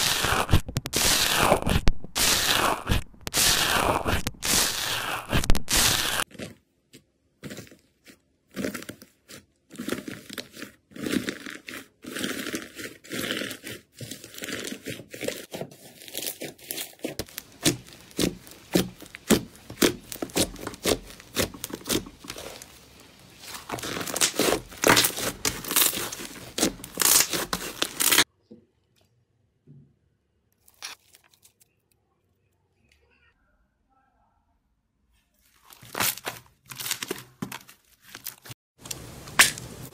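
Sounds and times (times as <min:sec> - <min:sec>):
slime crackling and popping: 0:00.0 - 0:06.3, 0:09.8 - 0:28.3, 0:38.3 - 0:39.9
metal tool pressing foamy slime: 0:08.6 - 0:28.2.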